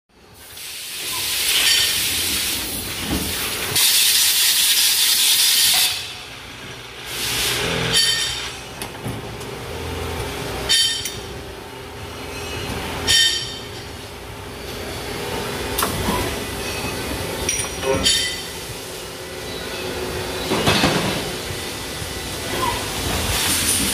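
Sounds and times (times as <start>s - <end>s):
long hissing blasts: 0.4s - 2.9s, 3.7s - 6.3s, 6.9s - 7.8s
ringing metallic clanks: 7.9s - 8.6s, 10.7s - 11.2s, 12.3s - 13.7s, 16.6s - 18.5s.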